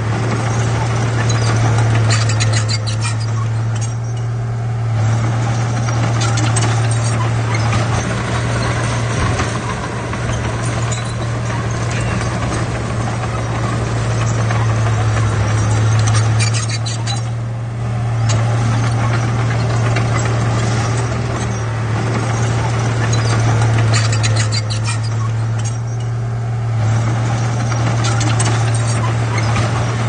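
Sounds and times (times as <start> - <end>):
bulldozer diesel engine drone: 0.0 - 30.0
clanking and rattling of tracks and rocks: 0.0 - 30.0.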